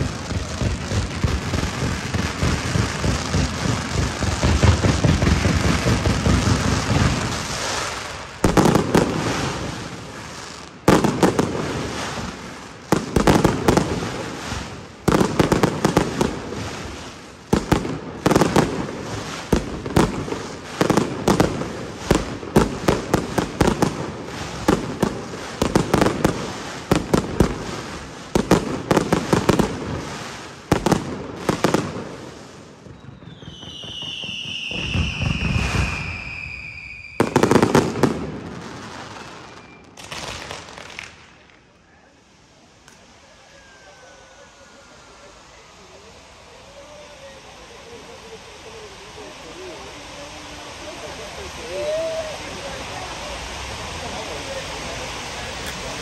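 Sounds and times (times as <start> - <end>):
fireworks bangs echoing: 0.0 - 41.7
fireworks crackling: 0.0 - 56.0.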